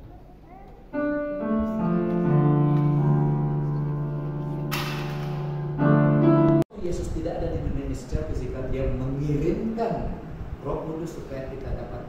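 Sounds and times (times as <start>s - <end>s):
piano-like keyboard music: 0.8s - 6.7s.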